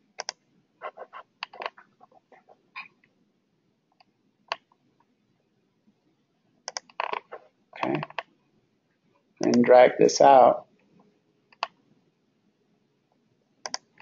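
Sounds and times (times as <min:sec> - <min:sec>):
mouse clicks: 0:00.2 - 0:00.4, 0:06.6 - 0:07.0, 0:11.5 - 0:11.8, 0:13.6 - 0:14.0.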